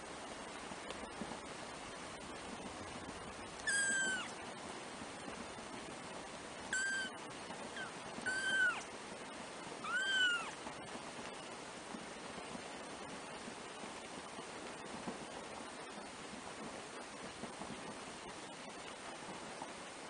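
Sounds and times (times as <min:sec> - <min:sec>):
kittens mewing: 0:03.6 - 0:04.3, 0:06.8 - 0:07.2, 0:07.8 - 0:08.8, 0:09.8 - 0:10.6.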